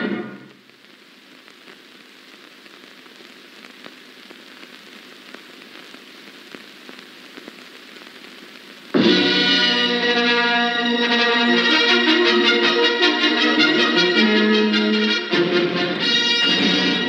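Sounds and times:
crackles and pops: 0:00.0 - 0:10.2
film soundtrack hiss: 0:00.0 - 0:17.0.

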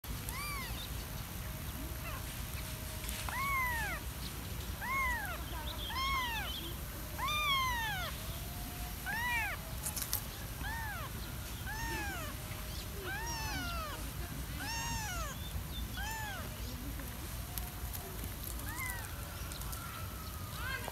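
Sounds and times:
kitten mewing: 0:00.2 - 0:00.9, 0:03.3 - 0:04.0, 0:04.8 - 0:06.6, 0:07.2 - 0:08.2, 0:09.0 - 0:09.7, 0:10.6 - 0:12.4, 0:13.0 - 0:14.0, 0:14.6 - 0:16.5.

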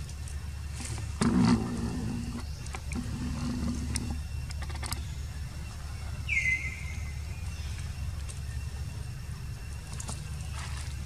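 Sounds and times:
steady low rumble: 0:00.0 - 0:11.0
high whistle-like animal call: 0:06.2 - 0:07.3.

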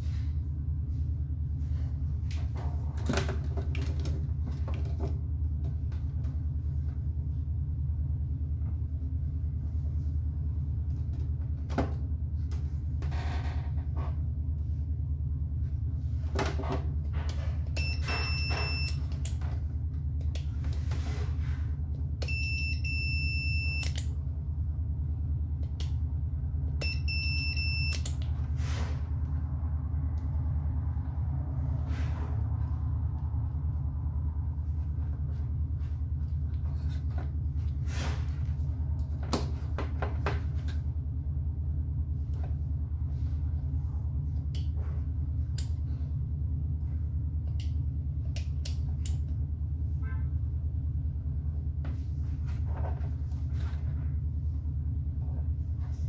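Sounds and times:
steady low rumble: 0:00.0 - 0:03.0, 0:03.7 - 0:56.0
multimeter continuity beep: 0:17.8 - 0:19.0, 0:22.2 - 0:24.0, 0:26.8 - 0:28.2.

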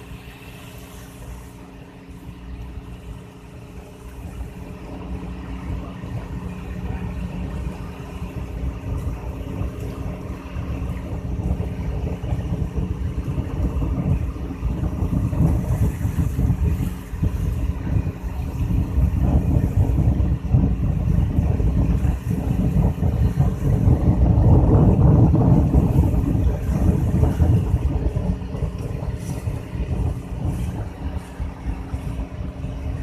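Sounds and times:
boat engine humming: 0:00.0 - 0:33.0
low rumble: 0:00.0 - 0:33.0.

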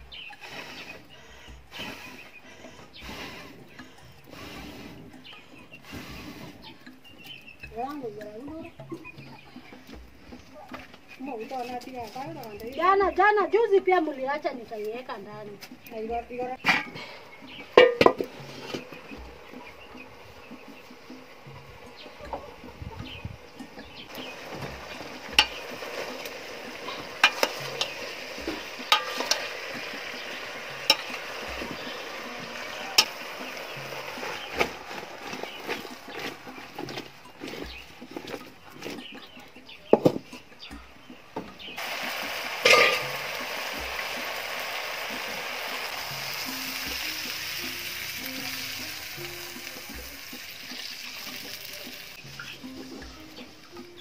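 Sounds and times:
faint music: 0:00.0 - 0:54.0
spoon stirring food in pot: 0:17.6 - 0:41.1, 0:42.6 - 0:44.2
spoon clinking on metal pot: 0:26.2 - 0:28.1, 0:28.8 - 0:30.0, 0:30.8 - 0:31.8, 0:42.6 - 0:43.2
water pouring: 0:41.8 - 0:52.6.

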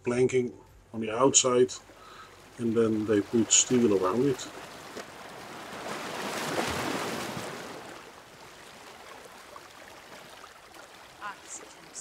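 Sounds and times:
faint surf wash: 0:00.9 - 0:12.0
ocean surf wave rushing: 0:02.5 - 0:10.4.

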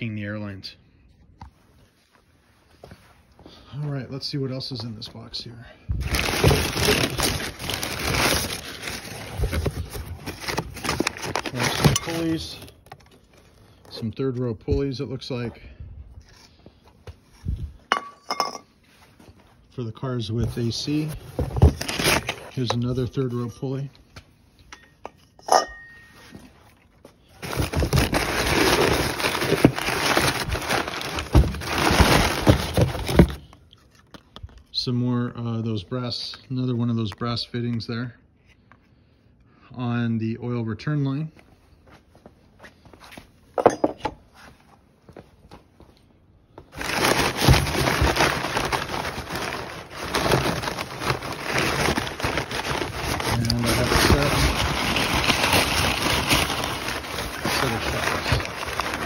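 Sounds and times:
packing paper rustling: 0:06.0 - 0:14.0, 0:20.4 - 0:23.2, 0:26.7 - 0:33.6, 0:46.7 - 0:59.0.

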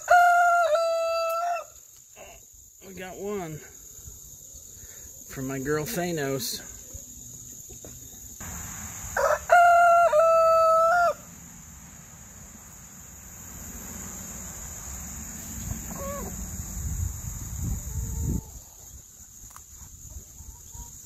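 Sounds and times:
rooster crowing: 0:00.0 - 0:01.8, 0:08.8 - 0:12.5, 0:15.8 - 0:16.6, 0:17.7 - 0:18.8
chicken cluck: 0:15.6 - 0:16.4, 0:19.8 - 0:21.0.

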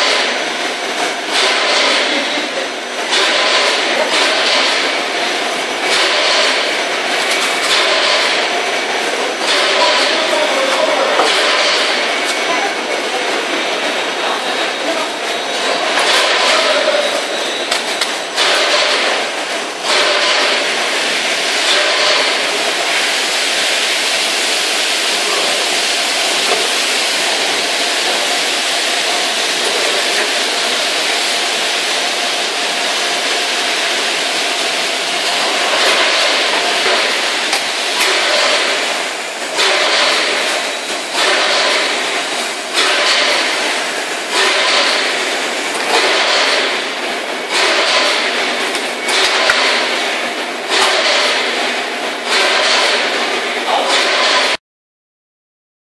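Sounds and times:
packaging machine hiss and hum: 0:00.0 - 0:54.6.

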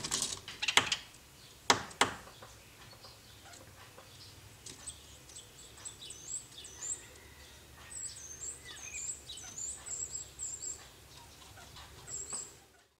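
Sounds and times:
small bird twittering song: 0:00.5 - 0:13.0.

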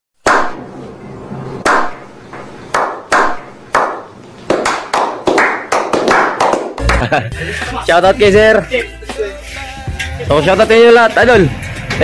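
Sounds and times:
people slow clapping: 0:02.8 - 0:07.2.

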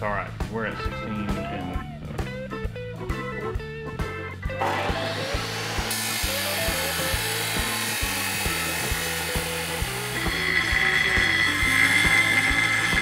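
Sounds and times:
background music with steady beat: 0:00.0 - 0:13.0
chop saw grinding steel: 0:04.6 - 0:13.0.

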